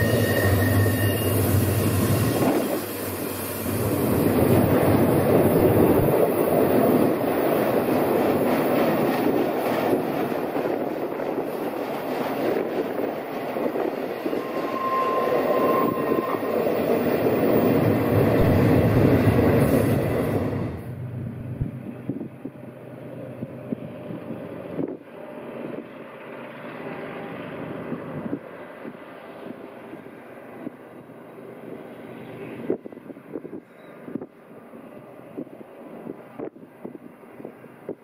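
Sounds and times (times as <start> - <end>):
brief squealing tone: 0.0 - 3.0, 14.3 - 17.7.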